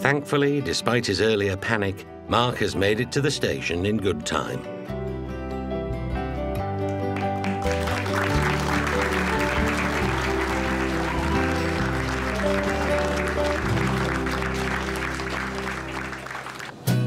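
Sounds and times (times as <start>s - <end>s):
background music: 0.0s - 17.0s
guests applauding: 6.9s - 17.0s.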